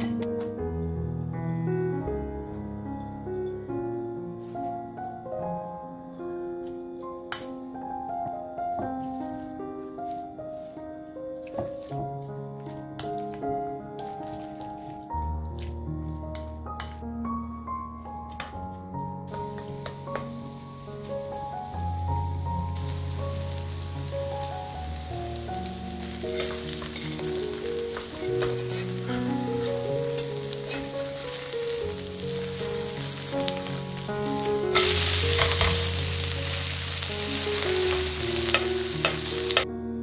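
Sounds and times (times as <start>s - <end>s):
soft keyboard music: 0.0s - 40.0s
batter sizzling in a pan: 19.3s - 39.6s
wooden spoon scraping a pan: 27.9s - 31.6s.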